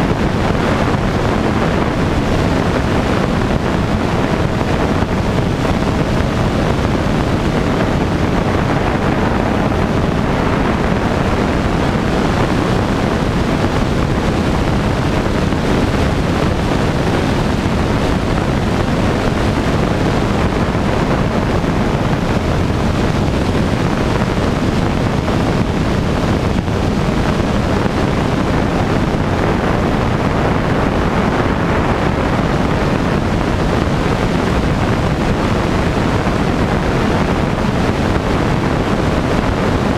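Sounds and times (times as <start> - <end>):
light aircraft engine and propeller: 0.0 - 39.9
wind rush on microphone: 0.0 - 39.9.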